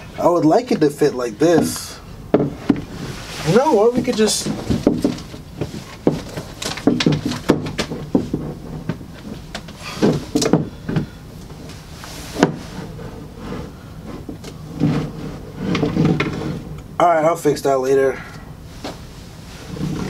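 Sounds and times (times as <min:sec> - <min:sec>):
skateboard knocking against wall: 0:02.3 - 0:02.9, 0:04.5 - 0:11.2, 0:12.4 - 0:12.6.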